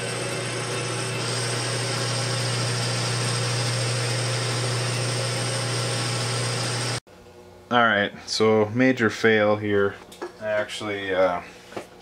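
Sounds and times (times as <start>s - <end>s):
lathe cutting metal with whine: 0.0s - 7.0s.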